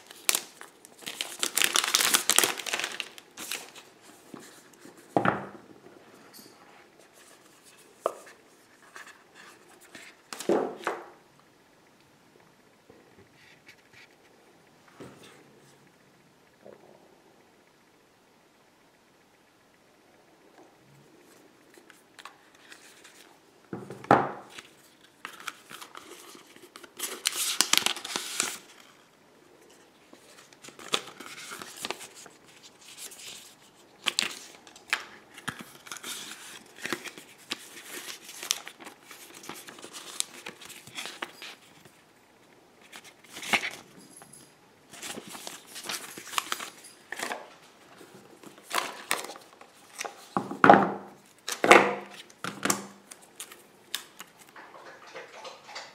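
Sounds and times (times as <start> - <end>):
paper and cardboard rustling: 0.0 - 5.2, 24.5 - 29.0, 29.7 - 42.0, 44.9 - 50.4.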